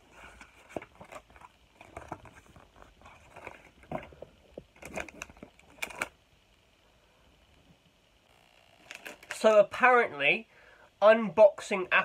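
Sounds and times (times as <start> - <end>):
paper and packaging rustling: 0.0 - 6.2, 8.8 - 9.5.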